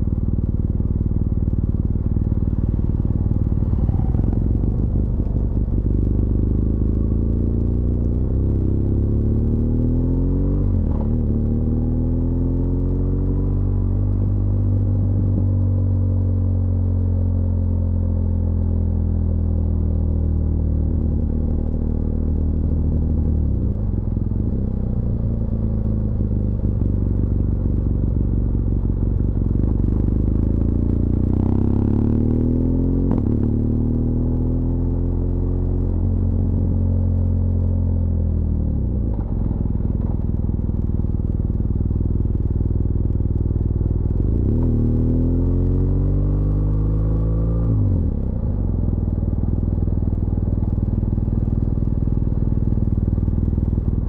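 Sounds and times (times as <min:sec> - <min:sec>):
motorcycle engine revving: 0:01.6 - 0:15.6, 0:26.2 - 0:54.0.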